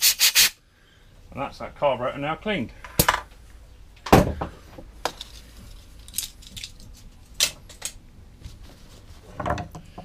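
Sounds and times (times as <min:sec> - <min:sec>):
metal parts and tools clattering: 0:05.0 - 0:08.0.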